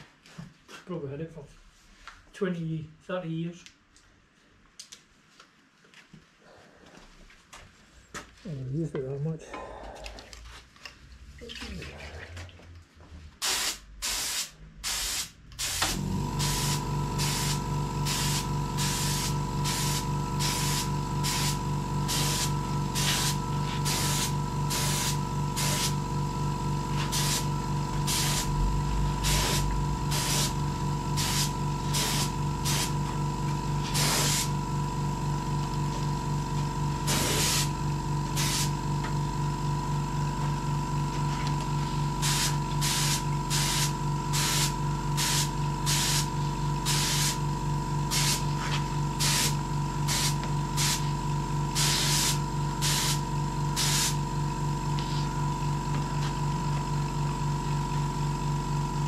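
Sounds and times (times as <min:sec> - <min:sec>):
spray gun hissing bursts: 0:13.4 - 0:26.0, 0:27.0 - 0:33.0, 0:33.8 - 0:34.6, 0:37.0 - 0:37.7, 0:38.3 - 0:38.8, 0:42.2 - 0:46.3, 0:46.9 - 0:47.4, 0:48.1 - 0:48.5, 0:49.2 - 0:51.1, 0:51.7 - 0:53.2, 0:53.8 - 0:54.2
air compressor humming: 0:13.4 - 0:59.0.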